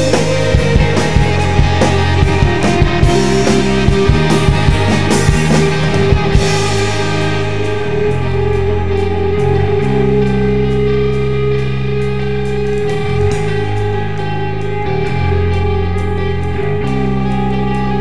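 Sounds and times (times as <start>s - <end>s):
drum hits: 0.0s - 7.3s
guitar and bass chords: 0.0s - 18.0s.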